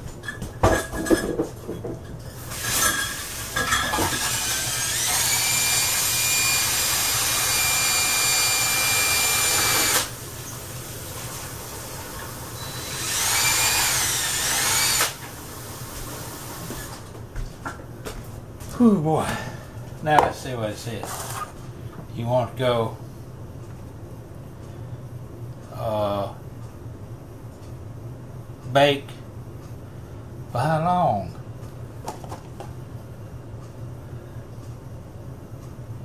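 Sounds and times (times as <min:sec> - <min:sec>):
small electric motor whining: 0:04.0 - 0:10.2, 0:12.6 - 0:15.2.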